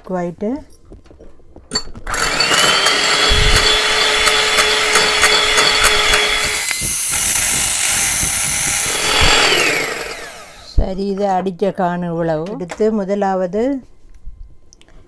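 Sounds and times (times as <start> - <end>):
electric hand mixer whining: 2.0 - 10.8.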